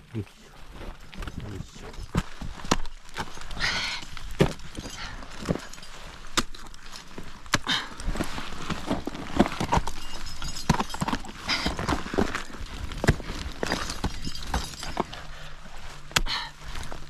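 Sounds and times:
scraping rushes on rock: 0.8s - 17.0s
crampons and ice tools knocking: 4.2s - 15.2s.

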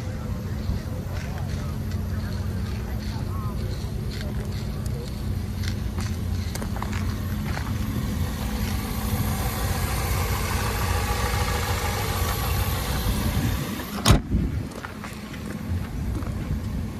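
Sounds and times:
car engine idling: 0.0s - 16.9s
car hood slamming shut: 14.0s - 14.3s.

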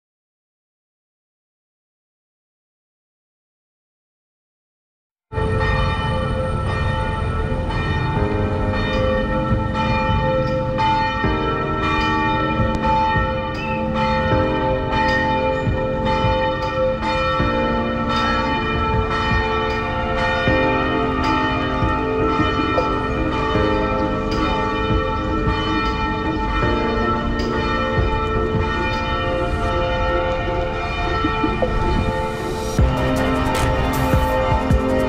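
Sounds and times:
church bells ringing: 5.3s - 35.0s
steady low rumble: 31.3s - 35.0s.

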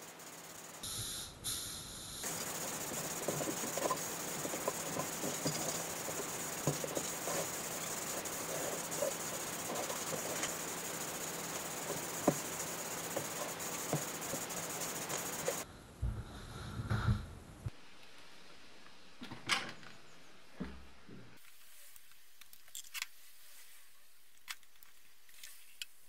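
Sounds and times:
paint spray gun hissing: 0.0s - 15.6s.

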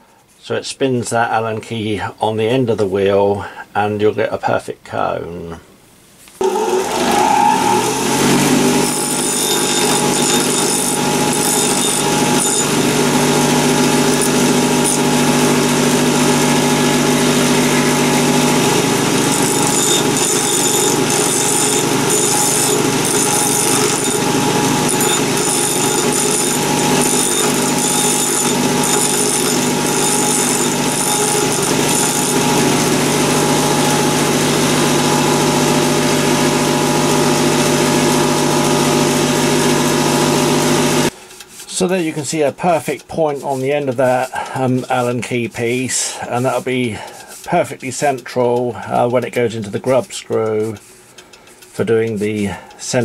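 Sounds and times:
bench grinder motor: 6.4s - 41.2s.

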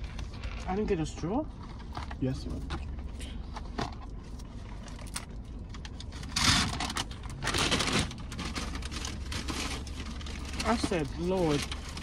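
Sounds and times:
low steady hum: 0.0s - 12.0s
paper carton crinkling: 4.4s - 12.0s.

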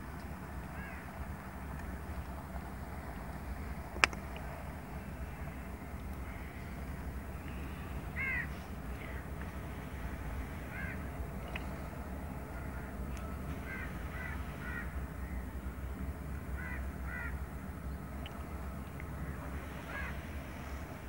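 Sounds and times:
steady low rumble: 0.0s - 21.0s
bird calls: 5.3s - 11.9s, 19.2s - 20.7s.

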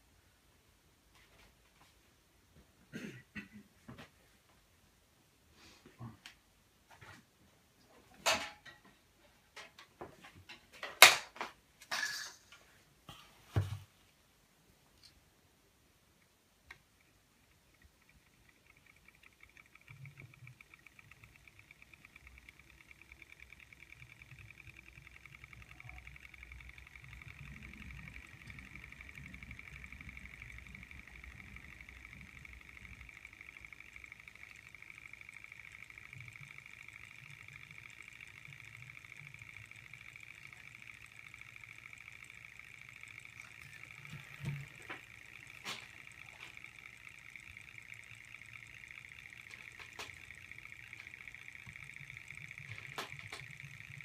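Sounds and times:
engines ticking rapidly: 17.0s - 54.0s.

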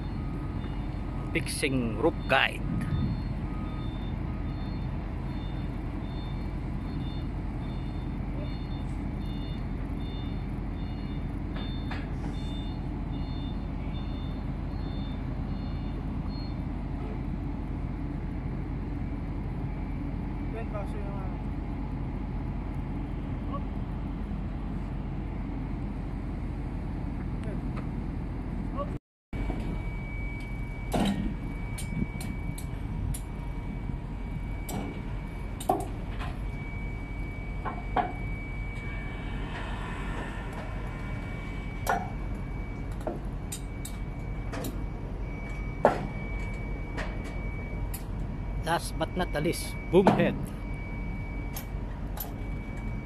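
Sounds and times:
electronic warning beeps: 0.0s - 16.7s, 29.4s - 53.0s
diesel machinery rumbling: 0.0s - 53.0s
high whine: 17.6s - 53.0s.

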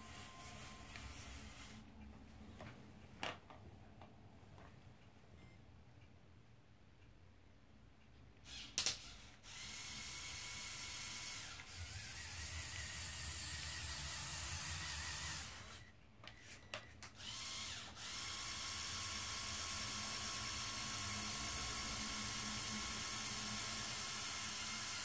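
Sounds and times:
toy truck motors whirring: 0.0s - 1.8s, 8.4s - 25.0s.

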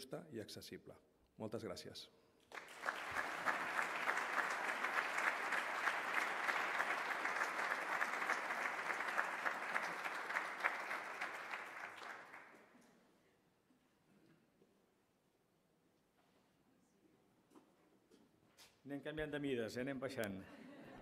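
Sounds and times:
audience applauding: 2.5s - 12.6s.

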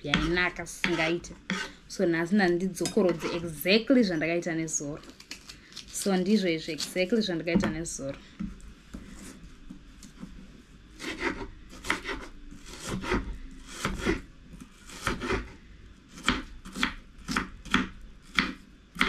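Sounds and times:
knife chopping on wooden board: 11.0s - 13.2s, 15.0s - 15.4s, 16.2s - 19.0s.

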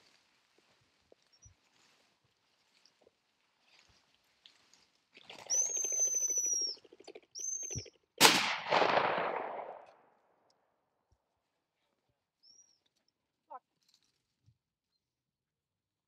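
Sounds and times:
pheasant wingbeats clattering: 5.2s - 8.0s
shotgun shot echoing: 8.2s - 9.9s.

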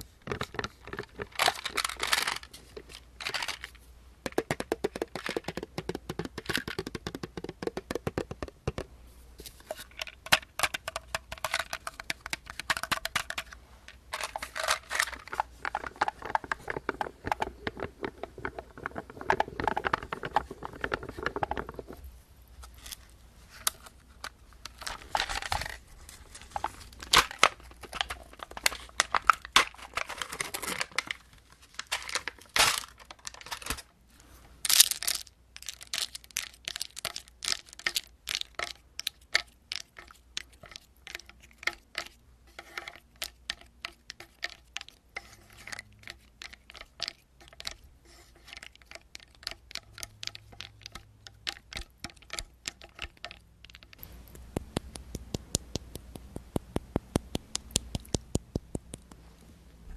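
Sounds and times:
plastic spoon scratching plastic tub: 4.3s - 8.8s, 9.7s - 22.0s, 39.4s - 58.8s.

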